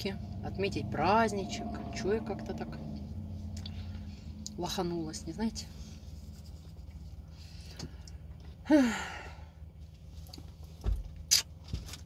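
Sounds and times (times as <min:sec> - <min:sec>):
steady low hum: 0:00.0 - 0:11.3
woman sighing: 0:08.6 - 0:09.5.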